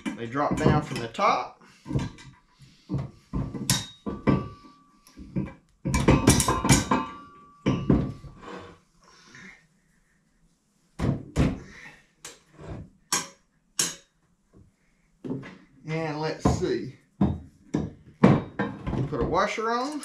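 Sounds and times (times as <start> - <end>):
steel parts clanking and knocking: 0.0 - 1.2, 3.4 - 4.6, 5.2 - 8.4, 17.3 - 20.0.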